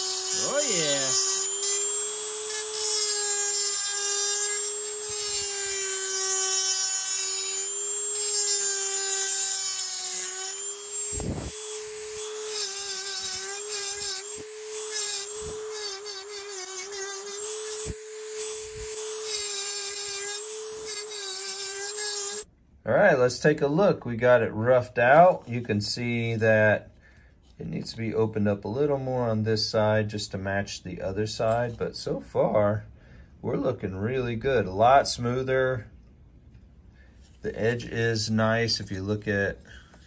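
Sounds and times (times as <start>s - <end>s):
rotary tool high whine: 0.0s - 22.5s.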